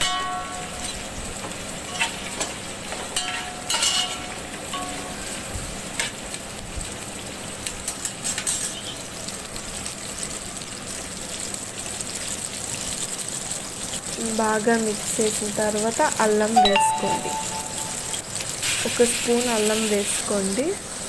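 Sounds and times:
clinks and scrapes against pot: 1.9 - 4.3, 7.9 - 9.0.

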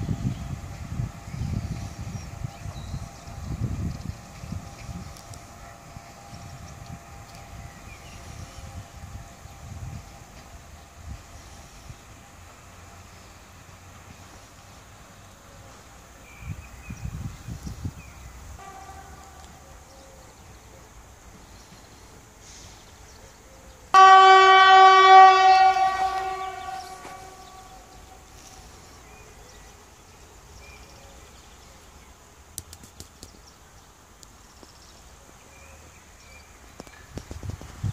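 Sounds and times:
train horn blast: 18.5 - 19.8, 23.9 - 28.9.

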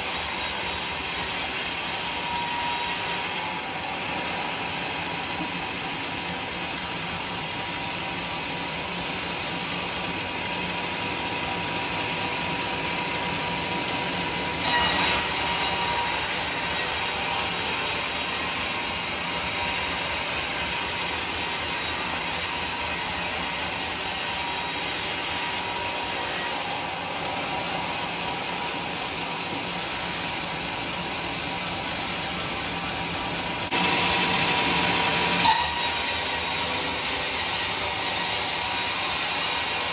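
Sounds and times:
band saw cutting wood: 0.0 - 6.6, 14.6 - 29.4, 33.6 - 39.9.

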